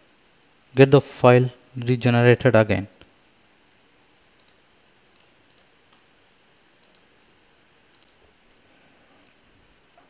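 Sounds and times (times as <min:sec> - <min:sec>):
computer mouse clicks: 0:04.4 - 0:06.1, 0:06.8 - 0:07.1, 0:07.9 - 0:08.3.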